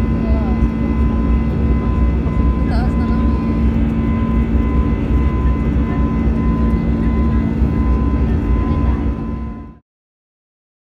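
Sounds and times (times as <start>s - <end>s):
jet engines rumbling in cabin: 0.0s - 9.8s.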